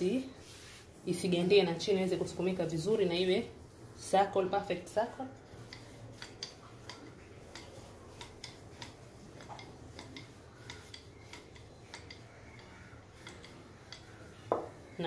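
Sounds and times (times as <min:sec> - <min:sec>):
rolling pin rolling dough: 0:00.0 - 0:15.0.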